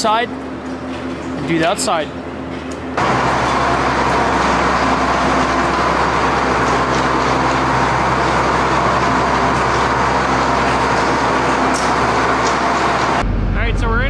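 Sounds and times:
tractor engine running: 0:03.0 - 0:14.0.

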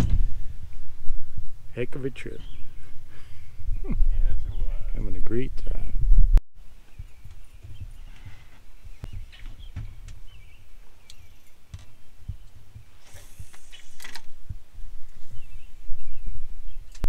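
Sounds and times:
low rumble: 0:00.0 - 0:06.4
faint bird-like chirps: 0:06.8 - 0:14.0
brief hiss: 0:13.0 - 0:14.2.

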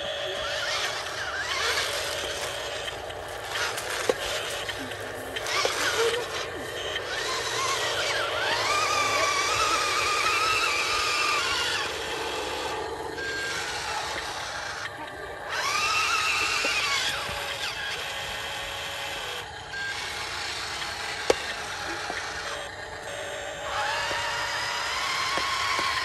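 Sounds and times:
toy truck electric motor whining: 0:00.0 - 0:26.0.

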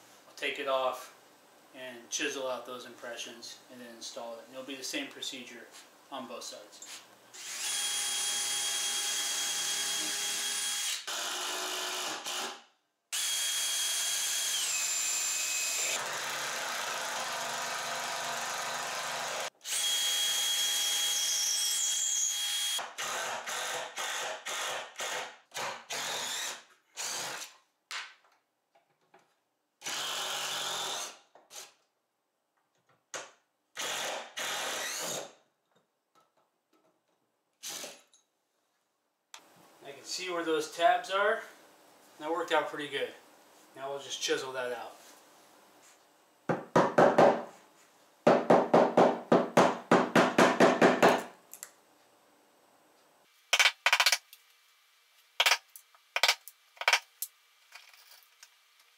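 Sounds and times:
drill trigger bursts driving screws: 0:07.3 - 0:27.6, 0:29.8 - 0:31.8, 0:33.8 - 0:35.4, 0:37.6 - 0:38.0
cordless drill motor whine: 0:13.1 - 0:16.2.

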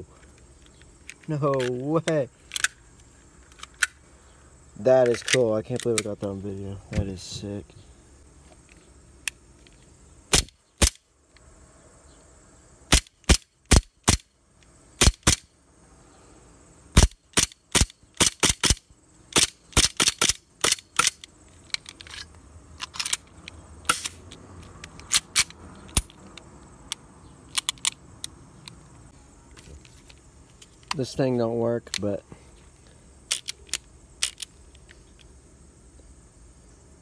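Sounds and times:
airsoft pistol firing: 0:10.3 - 0:11.0.

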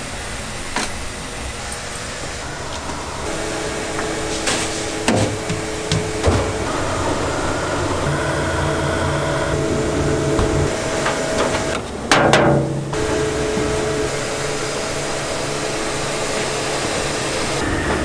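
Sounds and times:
grinding mill motor hum: 0:00.0 - 0:18.0
sharp knocks: 0:05.1 - 0:06.6, 0:10.4 - 0:13.0.

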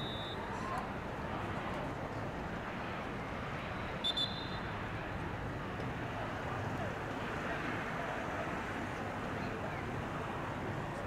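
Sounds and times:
referee's whistle blasts: 0:00.0 - 0:00.5, 0:04.0 - 0:04.7
open-field background noise: 0:00.0 - 0:11.0.

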